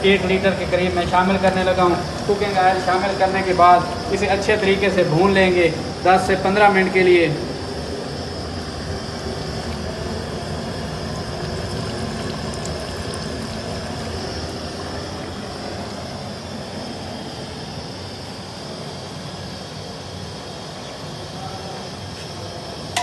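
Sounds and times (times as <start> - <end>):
steady rushing burner noise: 0.0 - 23.0
oil frying with crackling: 8.3 - 16.0.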